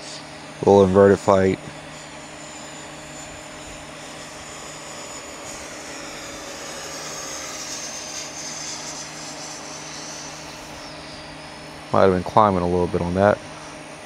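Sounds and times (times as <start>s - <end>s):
electric ducted fan whine: 0.0s - 14.0s.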